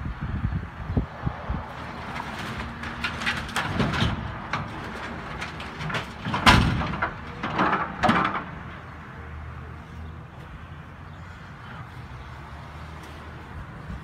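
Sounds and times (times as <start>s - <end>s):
house debris cracking and crashing: 2.0s - 8.7s.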